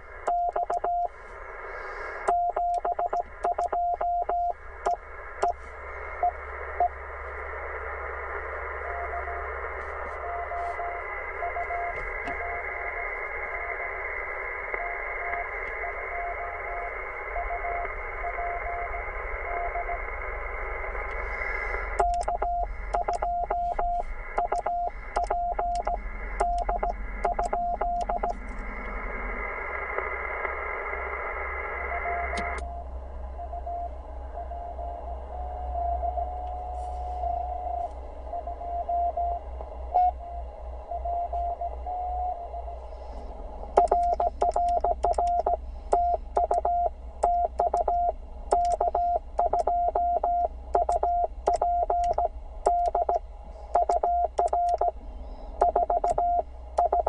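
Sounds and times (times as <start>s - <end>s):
receiver hiss: 0.0s - 57.0s
morse code tones: 0.3s - 1.1s, 2.3s - 4.6s, 10.1s - 12.9s, 21.9s - 28.4s, 43.8s - 53.2s, 53.8s - 55.0s, 55.6s - 57.0s
loud morse sidetone: 10.1s - 13.0s, 14.7s - 20.1s.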